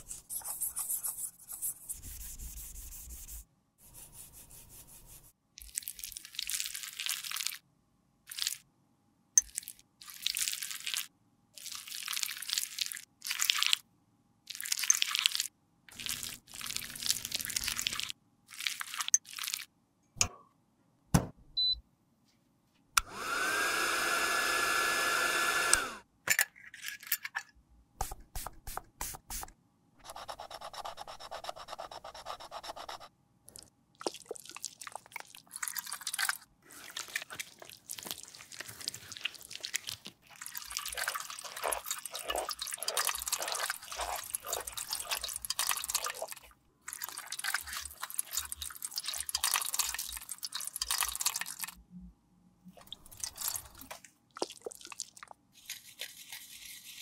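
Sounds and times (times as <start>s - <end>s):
sponge squelching in soapy water: 34.0s - 51.7s, 52.8s - 57.0s.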